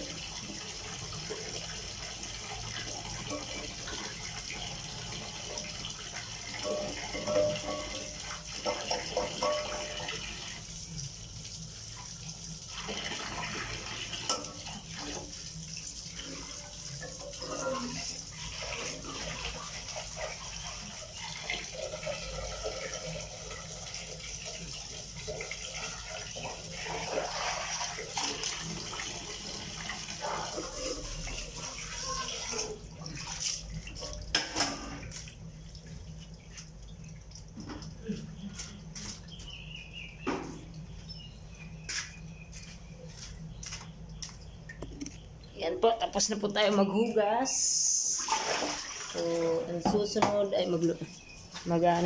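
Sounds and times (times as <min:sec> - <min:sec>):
pots being scrubbed: 0:01.0 - 0:10.7, 0:12.7 - 0:35.3
water poured from kettle: 0:16.1 - 0:35.3, 0:48.2 - 0:49.4
tap water splashing into basin: 0:21.3 - 0:39.6, 0:40.2 - 0:40.8, 0:48.2 - 0:50.5.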